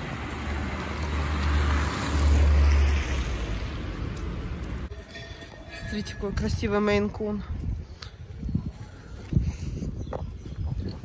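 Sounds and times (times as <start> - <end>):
car passing by: 0.0 - 4.9
wind rumble on microphone: 5.9 - 11.0.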